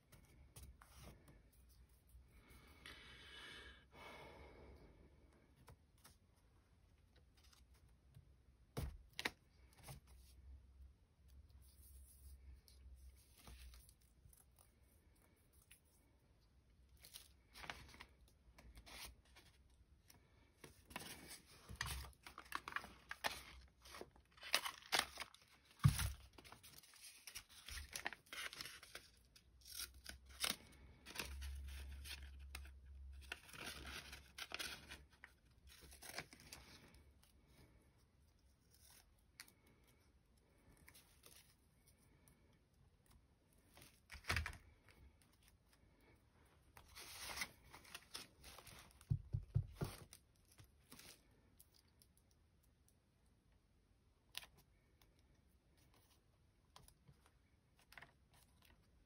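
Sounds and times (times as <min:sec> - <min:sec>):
paper rustling: 0:20.5 - 0:37.0, 0:46.7 - 0:51.4.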